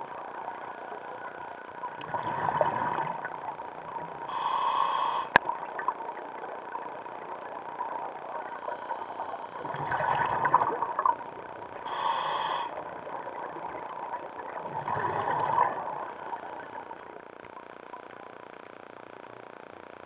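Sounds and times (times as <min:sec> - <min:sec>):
exhaled bubbles underwater: 0:00.0 - 0:18.2
regulator inhalation hiss: 0:04.3 - 0:05.4, 0:11.8 - 0:13.2.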